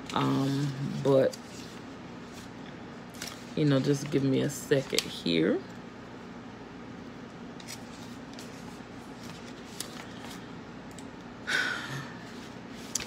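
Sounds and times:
low room hum: 0.0 - 13.0
paper rustling: 3.1 - 4.2, 7.6 - 10.5.

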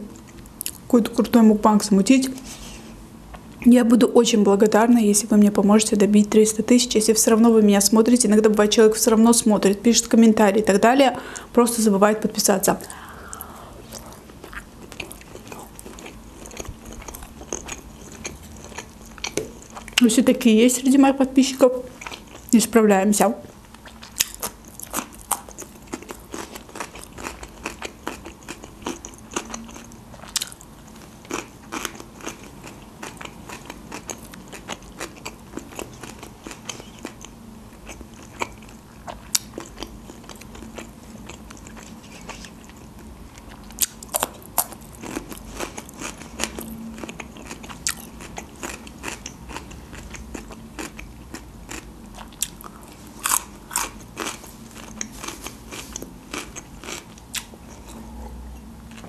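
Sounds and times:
wet chewing: 13.2 - 20.0
crunching cucumber bites: 23.8 - 30.6, 43.4 - 57.9.

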